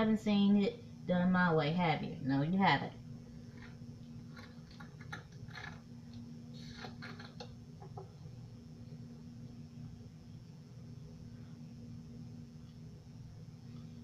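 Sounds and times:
steady low hum: 0.0s - 14.0s
syringe plunger scraping: 6.6s - 7.5s.

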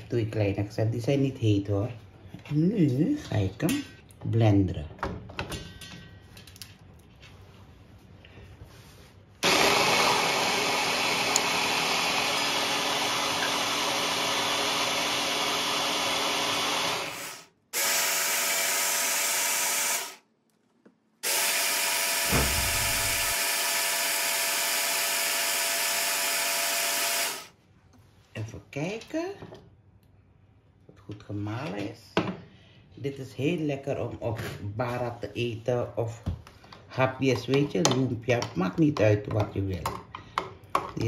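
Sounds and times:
hand blender motor chopping: 9.4s - 20.2s, 21.2s - 27.5s.

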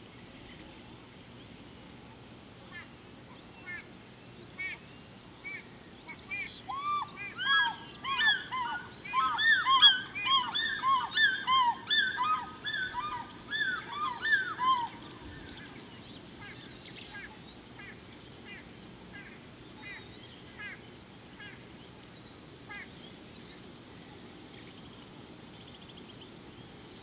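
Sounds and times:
flock of geese calling: 5.5s - 15.8s, 22.7s - 22.9s.

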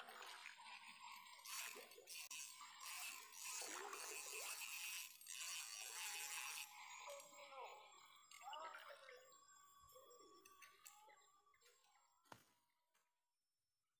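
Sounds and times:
faint water splashing: 0.0s - 2.2s
fishing reel noise: 0.0s - 11.9s.

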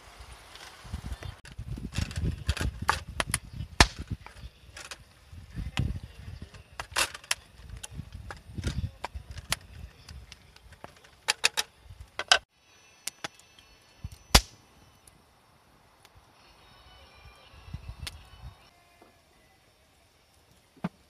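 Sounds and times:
loud sharp fire crack: 0.0s - 4.2s, 14.1s - 14.7s
low rumble of flames: 0.0s - 11.0s
campfire crackling and popping: 0.2s - 12.4s, 13.0s - 15.2s.

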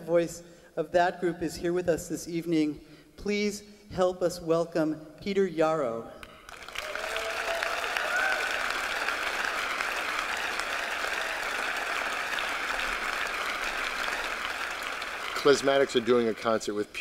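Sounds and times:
audience applauding: 6.4s - 17.0s.

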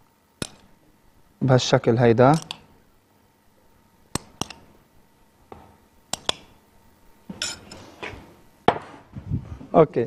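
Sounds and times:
glass bowl clinking: 7.4s - 7.8s.

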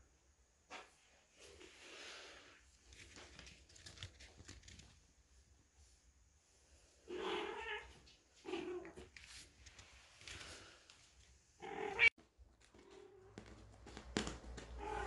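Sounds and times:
cat meowing: 7.1s - 9.0s, 11.6s - 12.1s, 14.8s - 15.0s.

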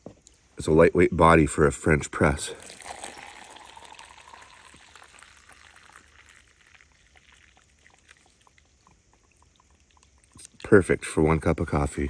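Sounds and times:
coffee trickling into mug: 2.5s - 10.6s.

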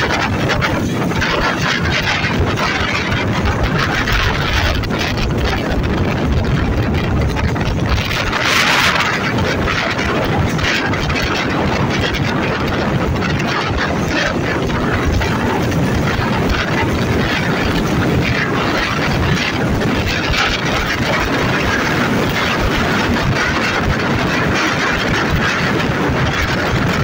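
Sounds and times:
moving train rumble and clatter: 0.0s - 27.0s
wind: 0.0s - 27.0s.

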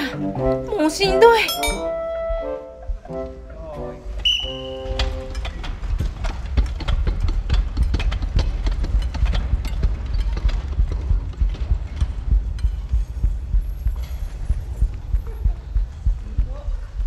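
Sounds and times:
wheels rolling on wooden floor: 4.1s - 16.2s
clicks and knocks on push rims: 5.3s - 13.0s.

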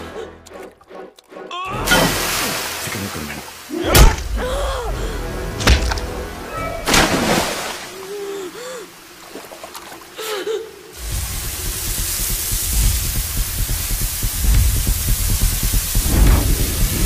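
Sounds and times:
background music: 0.0s - 6.9s
steady hiss: 1.9s - 17.0s
hits and splashes in water: 5.6s - 6.2s, 6.8s - 8.0s.

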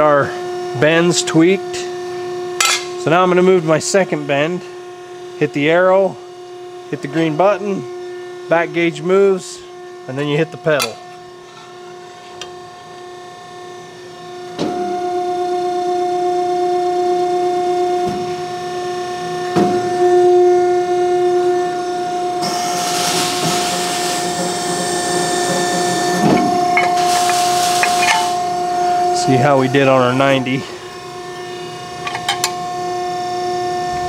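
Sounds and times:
press brake machine hum: 9.7s - 15.2s, 21.2s - 34.0s.

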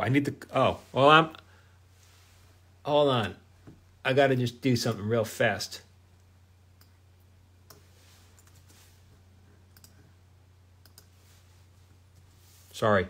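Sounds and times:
faint clicks: 6.2s - 7.0s, 9.7s - 10.0s, 10.8s - 11.1s.

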